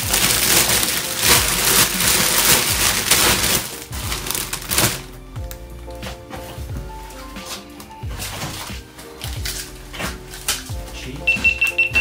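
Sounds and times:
plastic packaging crinkling: 0:00.0 - 0:05.2.

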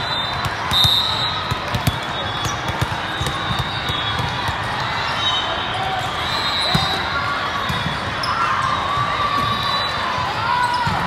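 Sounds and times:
sneakers squeaking on court: 0:00.0 - 0:08.5
hubbub of many voices: 0:00.0 - 0:11.0
volleyballs thumping: 0:00.3 - 0:04.8.

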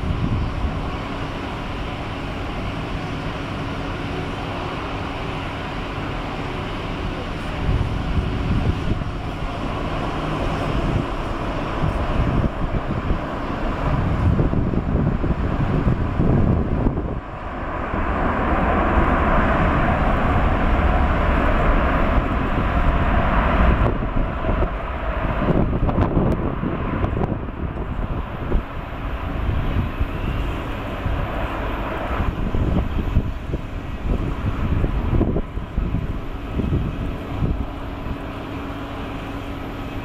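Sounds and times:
jet engine roar: 0:00.0 - 0:40.0.

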